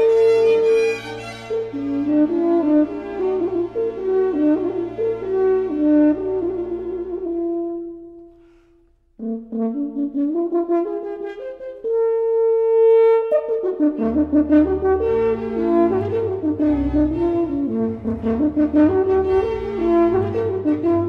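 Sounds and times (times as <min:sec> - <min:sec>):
background music held notes: 0:00.0 - 0:08.5, 0:13.3 - 0:21.0
low bass part: 0:16.6 - 0:21.0.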